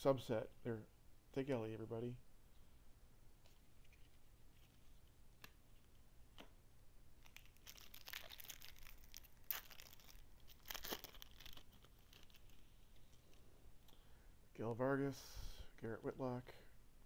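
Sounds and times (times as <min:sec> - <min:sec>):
card pack wrapper tearing and crinkling: 0:07.2 - 0:12.7.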